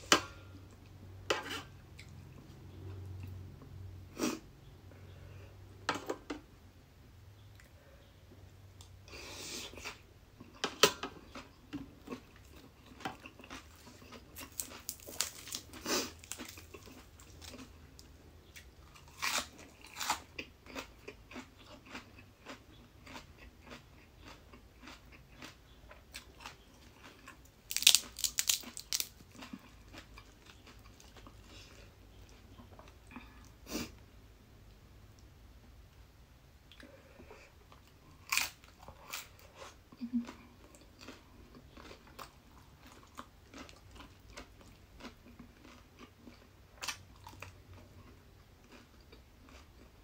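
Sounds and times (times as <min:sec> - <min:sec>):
chewing and crunching: 0:09.7 - 0:33.5, 0:36.7 - 0:50.0.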